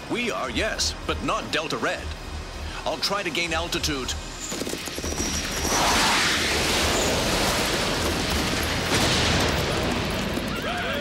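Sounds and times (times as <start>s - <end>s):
explosion blast: 5.7s - 10.4s.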